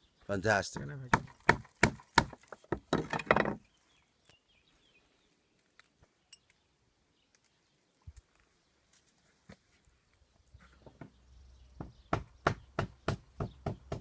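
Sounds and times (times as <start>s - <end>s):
sharp knocks: 0.8s - 3.6s.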